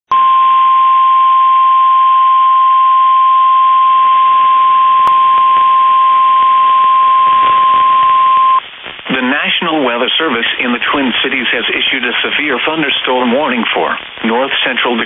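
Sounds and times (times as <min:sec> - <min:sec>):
radio hiss: 0:04.0 - 0:15.0.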